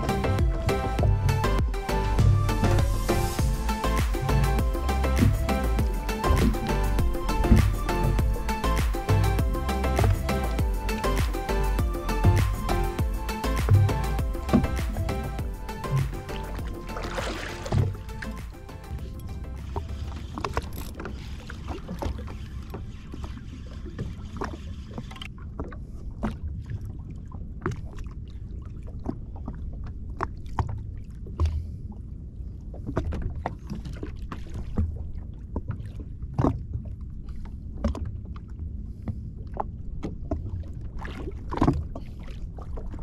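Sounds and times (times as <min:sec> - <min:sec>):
low rumble of sea: 0:00.0 - 0:43.0
water slapping against hull: 0:00.0 - 0:43.0
wind: 0:00.0 - 0:43.0
small knocks and splashes: 0:15.9 - 0:18.6, 0:19.6 - 0:31.7, 0:32.7 - 0:43.0.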